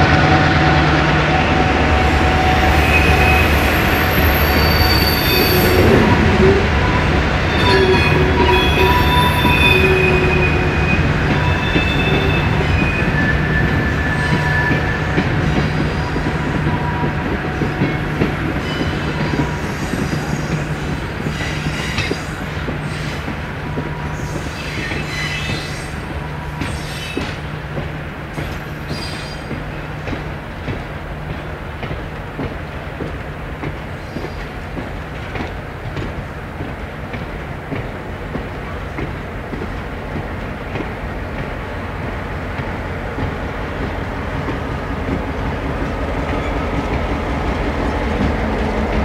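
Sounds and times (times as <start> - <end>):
train wheels squealing on rails: 1.3 - 30.3, 33.8 - 35.4, 42.6 - 49.0.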